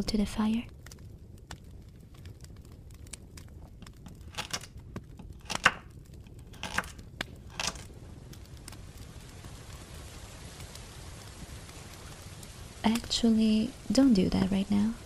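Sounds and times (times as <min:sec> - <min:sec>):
campfire crackling: 0:00.0 - 0:15.0
rustling crinkling noises: 0:00.0 - 0:15.0.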